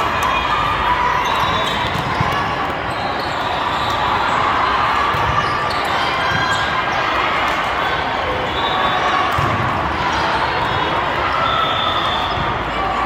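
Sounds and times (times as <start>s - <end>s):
many voices: 0.0s - 13.0s
volleyballs struck and bouncing: 1.6s - 2.8s, 9.3s - 9.9s.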